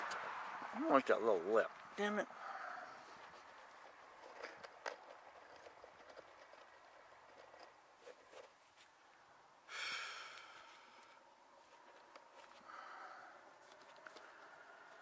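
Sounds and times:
person exhaling breathily: 0:02.3 - 0:03.1, 0:09.7 - 0:11.2, 0:12.6 - 0:13.4.

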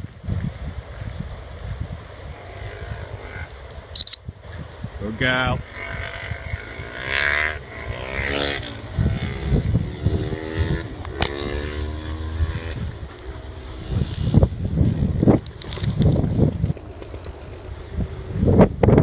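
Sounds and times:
distant engine droning: 0:01.9 - 0:15.6.

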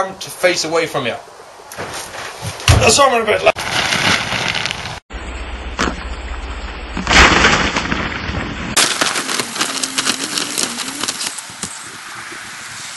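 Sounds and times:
wind on microphone: 0:09.3 - 0:12.9.

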